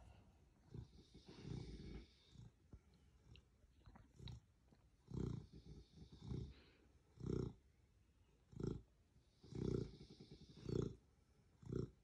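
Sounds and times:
dog snoring: 0.6 - 2.6, 4.1 - 4.4, 5.0 - 7.7, 8.4 - 12.0.

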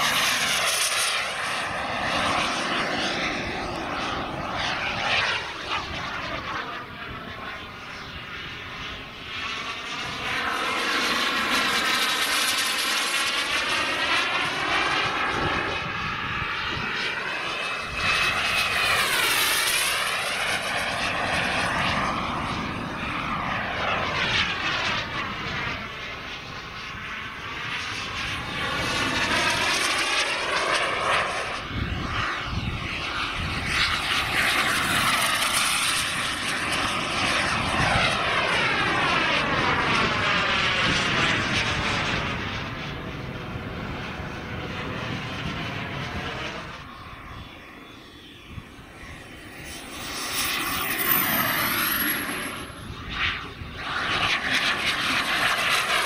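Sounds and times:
model jet turbine flying past: 0.0 - 56.0
short high whine: 48.4 - 53.1.

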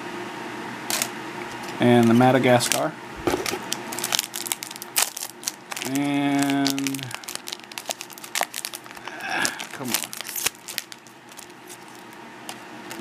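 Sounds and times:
foil wrapper crinkling: 3.4 - 13.0.

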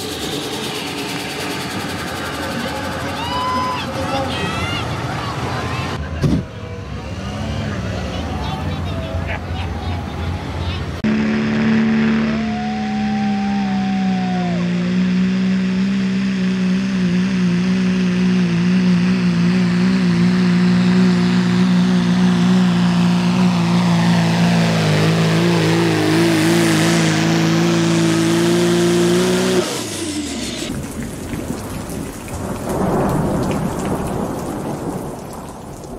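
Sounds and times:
diesel truck engine at high revs: 0.0 - 33.3
rain: 30.1 - 35.9
thunder rumble: 30.7 - 35.9.

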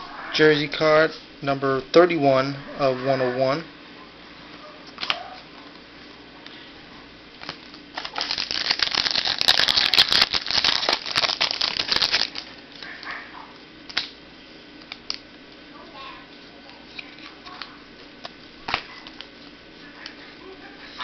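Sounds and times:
cards and packaging crinkling: 7.4 - 13.0.

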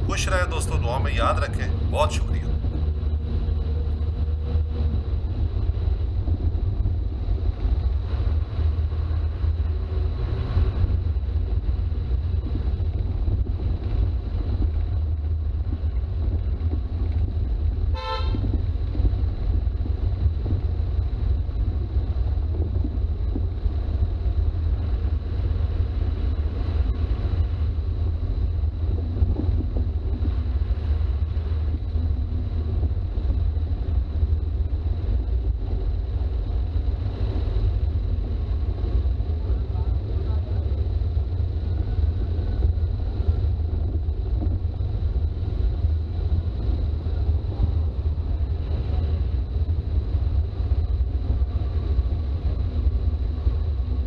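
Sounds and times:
diesel engine droning: 0.0 - 14.1
vehicle horn toot: 18.0 - 18.5.

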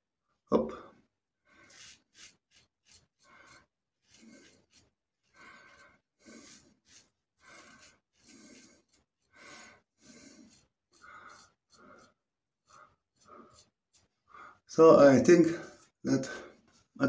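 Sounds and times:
razor scraping over stubble: 1.5 - 14.6.

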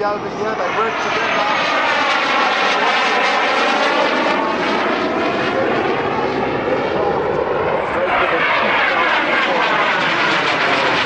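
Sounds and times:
jet flying overhead: 0.0 - 11.0.

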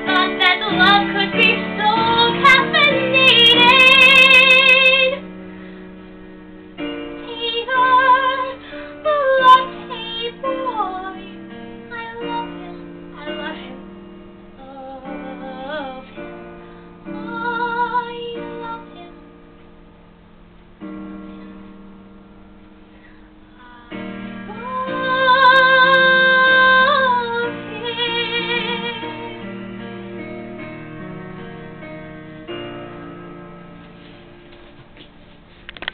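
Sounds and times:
woman singing: 0.0 - 5.2, 7.2 - 19.4, 23.6 - 29.6
instrumental backing track: 0.0 - 35.9.

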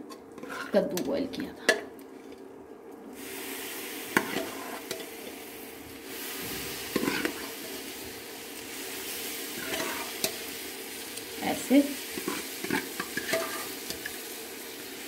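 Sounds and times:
sizzling hiss in hot pan: 3.1 - 15.0.

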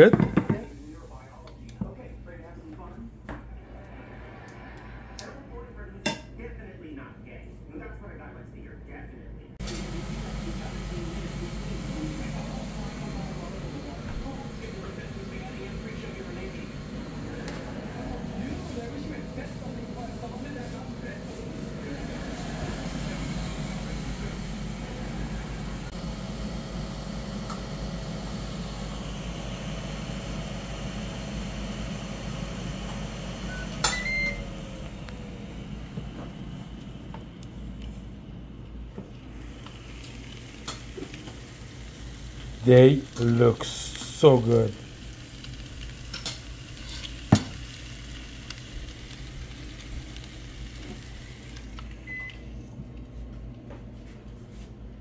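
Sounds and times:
grill fan humming: 0.0 - 55.0
meat sizzling on grill: 39.3 - 51.8.

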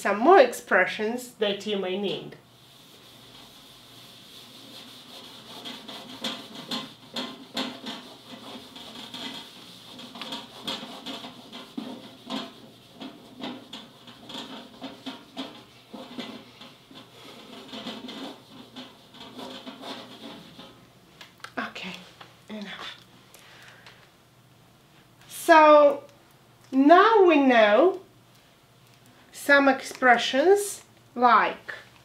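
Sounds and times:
eraser rubbing whiteboard: 2.5 - 20.8.

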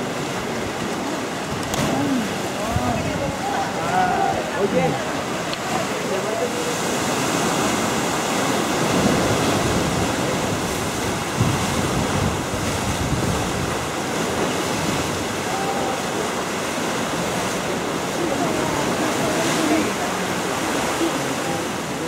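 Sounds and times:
ocean surf: 0.0 - 22.0
wind on microphone: 1.5 - 5.8, 6.6 - 22.0.

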